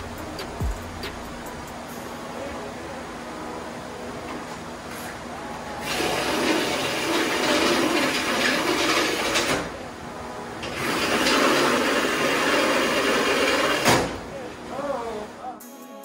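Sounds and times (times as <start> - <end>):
power tool cutting sheet metal: 5.8 - 9.7, 10.6 - 14.1.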